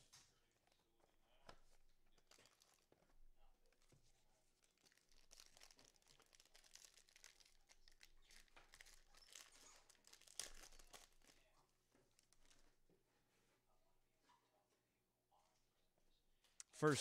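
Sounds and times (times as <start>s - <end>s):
wrapper crinkling and tearing: 2.1s - 3.0s, 4.6s - 11.5s, 12.1s - 12.7s.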